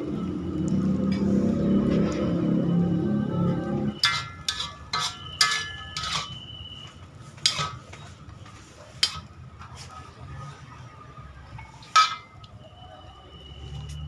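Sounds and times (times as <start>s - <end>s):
metal clanks ringing: 4.0s - 6.4s, 11.9s - 12.4s
spatula scraping a wok: 4.0s - 10.0s.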